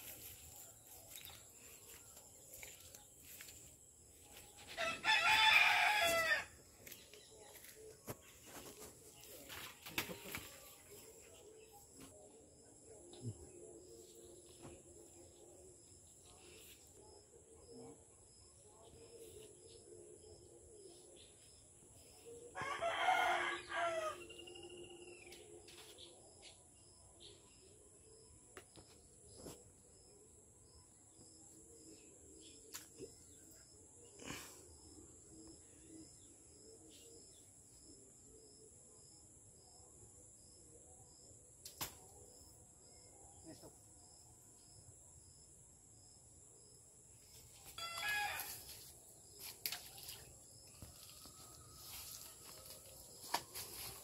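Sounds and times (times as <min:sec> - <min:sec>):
rooster crowing: 0:04.8 - 0:06.5, 0:22.6 - 0:24.4, 0:47.8 - 0:48.6.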